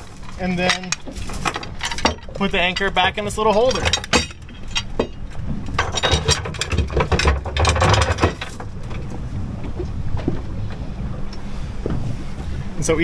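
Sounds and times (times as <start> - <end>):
metal anchor chain rattling: 0.0 - 9.2.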